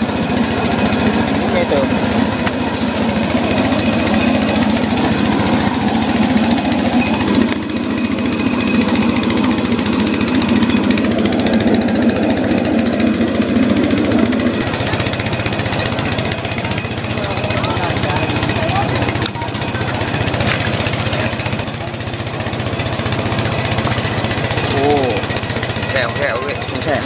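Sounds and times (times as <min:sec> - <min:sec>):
small engine chugging: 0:00.0 - 0:27.0.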